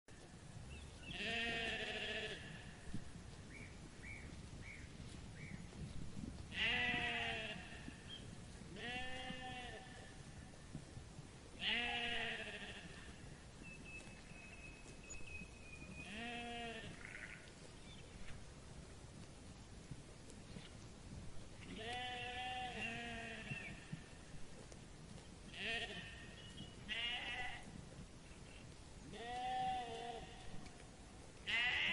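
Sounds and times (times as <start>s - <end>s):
sheep bleating: 1.1s - 2.8s, 6.5s - 8.0s, 8.7s - 10.1s, 11.6s - 13.2s, 16.0s - 17.5s, 21.7s - 23.7s, 25.5s - 26.3s, 26.9s - 27.7s, 29.1s - 30.6s, 31.4s - 31.9s.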